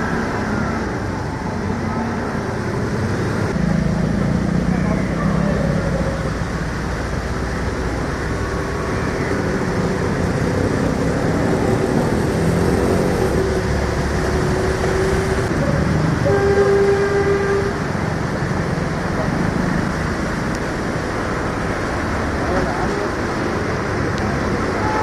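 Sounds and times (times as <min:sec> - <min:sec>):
vehicle horn: 0:16.2 - 0:17.8.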